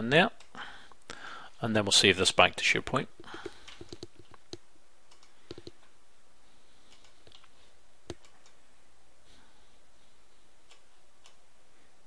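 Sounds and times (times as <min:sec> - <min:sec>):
faint steady hiss: 0:00.0 - 0:12.0
mouse and keyboard clicks: 0:03.3 - 0:05.8.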